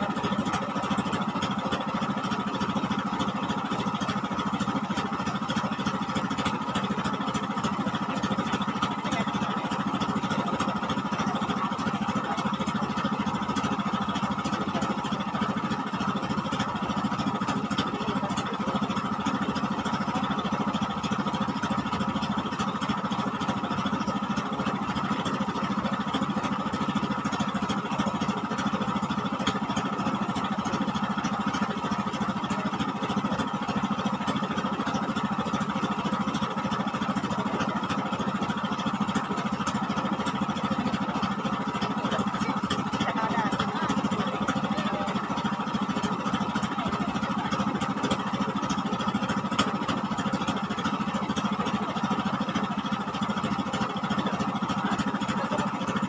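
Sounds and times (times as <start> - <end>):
engine running steadily: 0.0 - 56.0.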